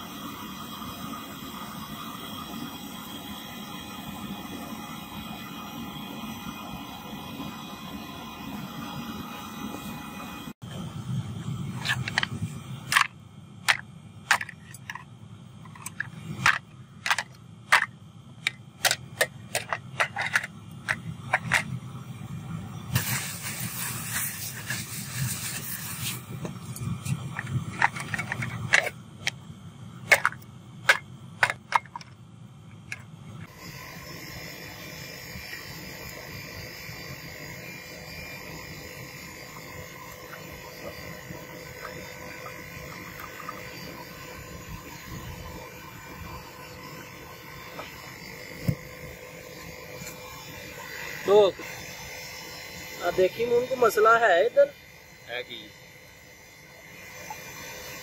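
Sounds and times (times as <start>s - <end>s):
low hum: 3.2s - 54.0s
brief hiss: 22.9s - 26.2s.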